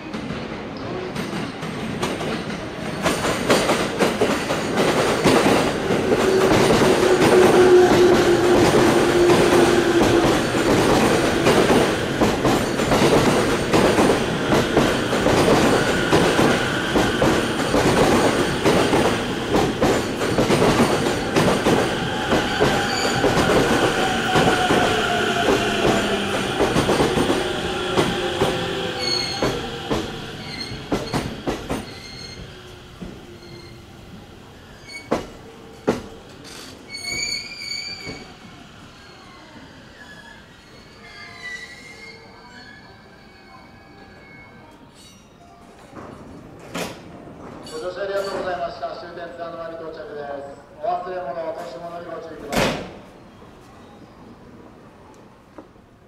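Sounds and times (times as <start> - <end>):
high wheel squeals: 28.8 - 29.7, 30.4 - 32.6, 36.9 - 38.4, 39.0 - 45.2.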